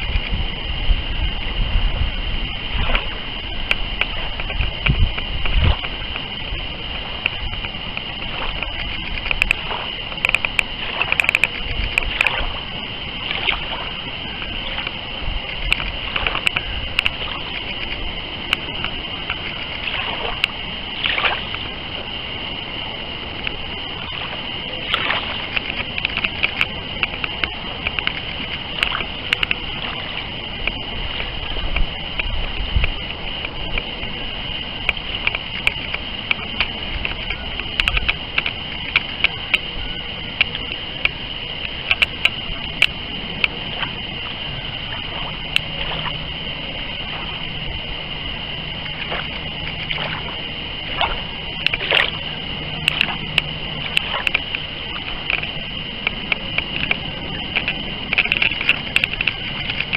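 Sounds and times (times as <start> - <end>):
steady high-pitched tone: 0.0 - 59.9
waves lapping and splashing: 0.0 - 59.9
sharp clicks: 7.2 - 12.5, 23.4 - 33.9, 34.8 - 39.7, 40.4 - 44.1, 50.9 - 59.9.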